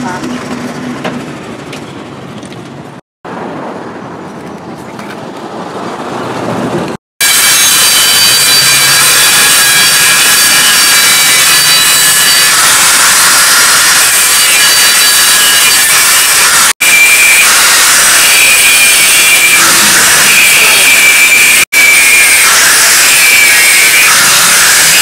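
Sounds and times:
angle grinder cutting metal: 7.2 - 25.0.

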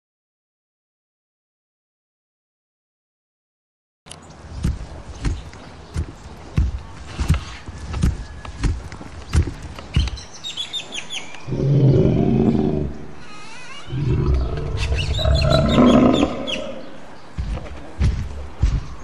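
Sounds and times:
heavy thudding footsteps: 4.4 - 10.3, 13.9 - 19.0
deep roars: 11.5 - 13.2, 13.9 - 17.0.

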